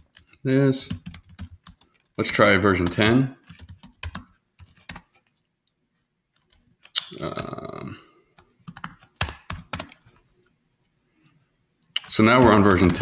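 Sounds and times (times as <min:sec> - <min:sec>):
computer keyboard typing: 0:00.0 - 0:05.2, 0:06.4 - 0:07.5, 0:08.4 - 0:10.1, 0:11.8 - 0:13.0.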